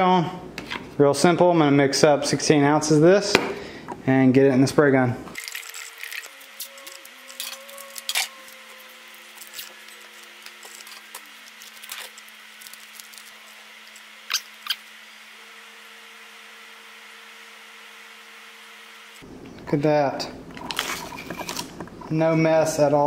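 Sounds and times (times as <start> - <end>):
masking tape pulled and crinkled: 5.4 - 14.9.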